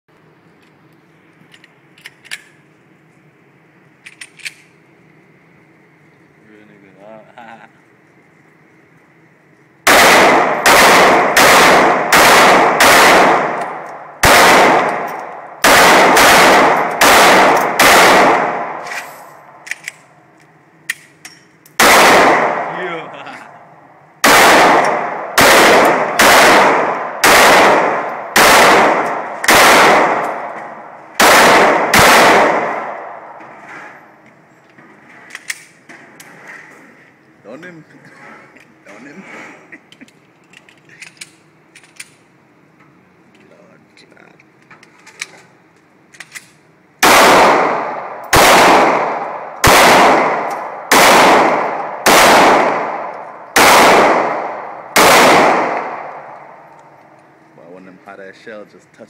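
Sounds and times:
handgun shots echoing: 9.9s - 20.1s, 20.8s - 23.0s, 24.2s - 33.4s, 46.2s - 57.0s.

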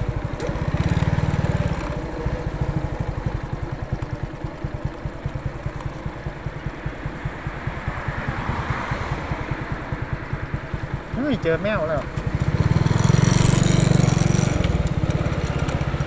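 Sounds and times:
small motorcycle engine puttering: 0.0s - 6.8s, 12.0s - 16.0s.

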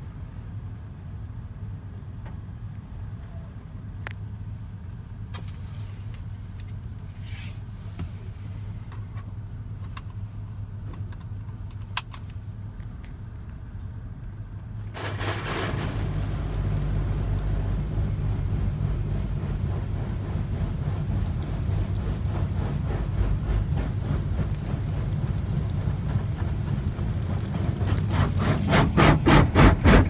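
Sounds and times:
water spray hitting car: 14.8s - 30.0s
low hum: 15.4s - 28.7s
water drips ticking: 15.9s - 28.7s.

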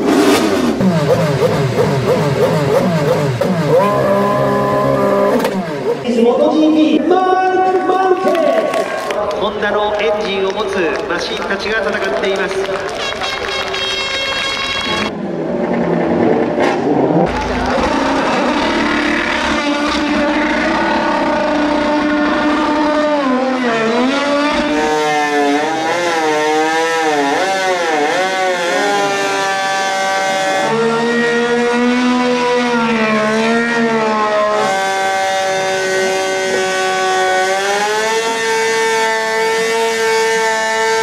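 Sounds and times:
race car engine revving: 0.0s - 41.0s.

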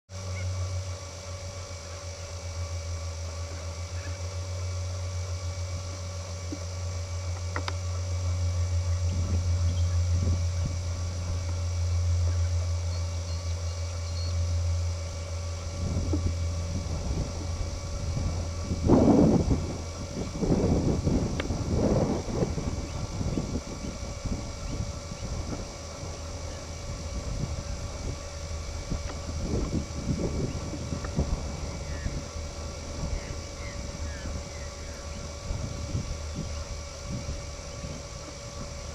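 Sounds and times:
faint hum: 0.1s - 38.9s
wind buffeting microphone: 8.4s - 12.9s, 14.5s - 38.9s.

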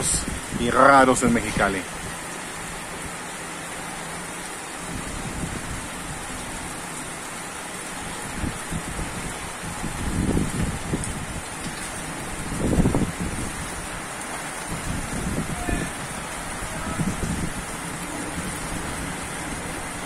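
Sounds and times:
heavy rain falling: 0.0s - 20.0s
thunder rumbling: 8.2s - 20.0s.

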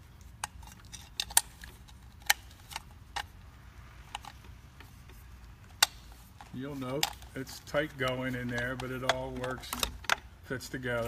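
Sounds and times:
switch and wires clicking and tapping: 5.7s - 10.3s.

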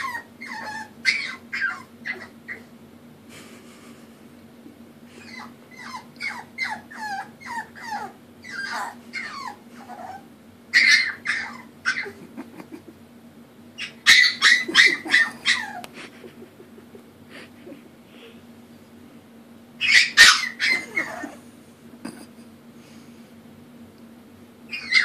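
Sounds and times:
puppy whining and crying: 0.0s - 2.7s, 5.2s - 12.4s, 13.8s - 15.9s, 19.8s - 21.4s, 24.7s - 25.0s.

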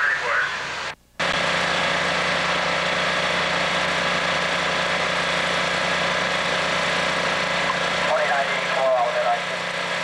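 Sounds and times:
fire engine running: 0.0s - 10.0s
water pump rushing: 0.5s - 10.0s.

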